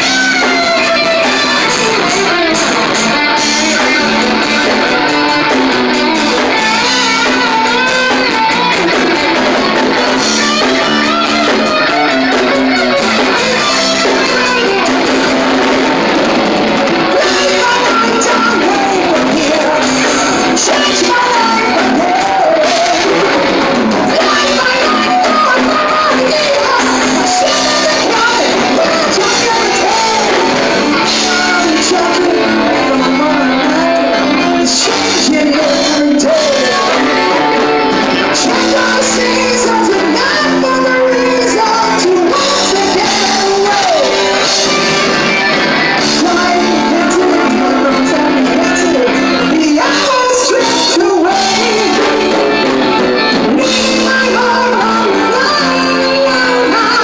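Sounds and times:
man singing into microphone: 0.0s - 5.2s, 17.1s - 45.2s, 45.9s - 57.0s
bass guitar: 0.0s - 57.0s
drums: 0.0s - 57.0s
electric guitar: 0.0s - 57.0s.

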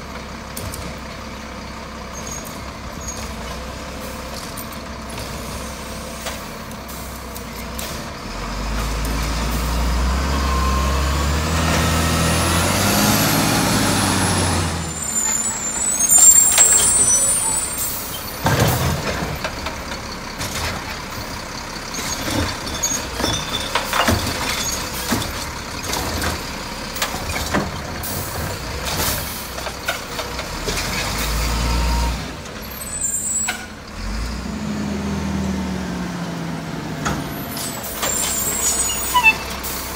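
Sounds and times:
diesel truck engine revving: 1.8s - 39.9s
metal clanks and knocks: 22.1s - 27.9s.

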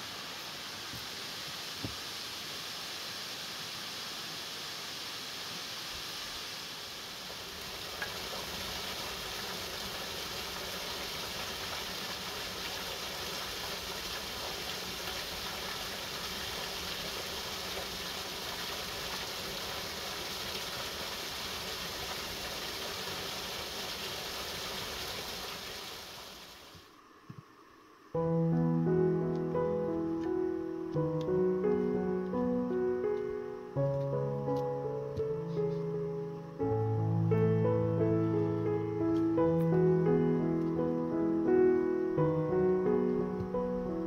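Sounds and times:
waterfall rushing: 0.0s - 26.8s.

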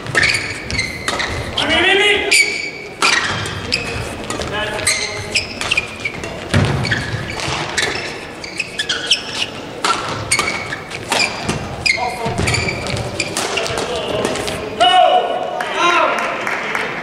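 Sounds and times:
rackets hitting shuttlecock: 0.0s - 14.6s
shoes squeaking on court: 0.0s - 14.7s
players landing thuds: 3.0s - 8.1s.

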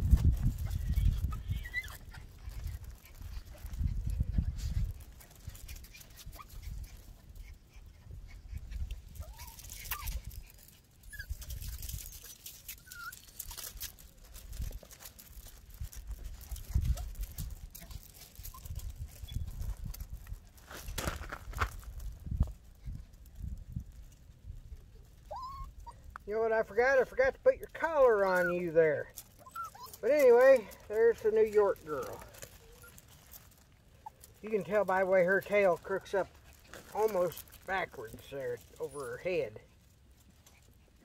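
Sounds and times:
puppies whining and yipping: 0.4s - 14.9s, 16.4s - 19.7s, 24.9s - 26.2s, 28.0s - 34.8s.

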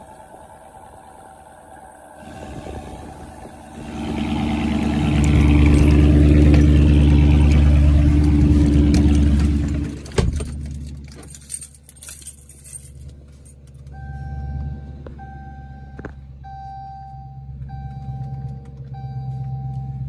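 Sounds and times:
car engine idling: 0.0s - 20.0s
keys jingling: 5.6s - 14.0s.

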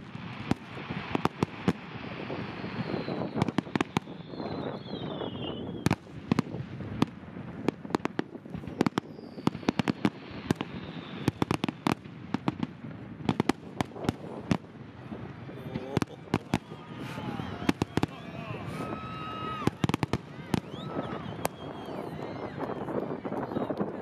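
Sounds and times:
fireworks bangs: 0.0s - 24.0s
fireworks crackling: 0.0s - 24.0s
falling firework whistle: 1.1s - 6.0s, 8.6s - 12.0s, 16.1s - 23.8s.

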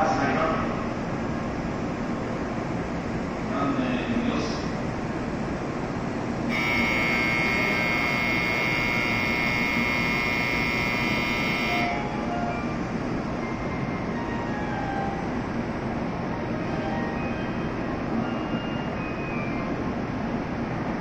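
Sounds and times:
train hum: 0.0s - 21.0s
electronic warning buzzer: 6.5s - 12.0s.

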